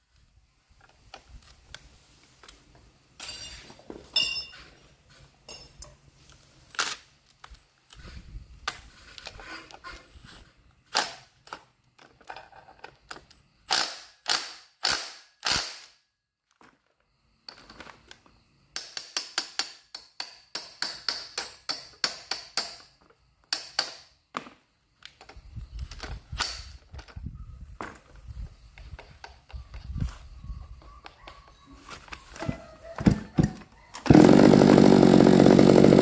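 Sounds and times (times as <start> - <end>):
impact wrench hammering: 19.0 - 23.0.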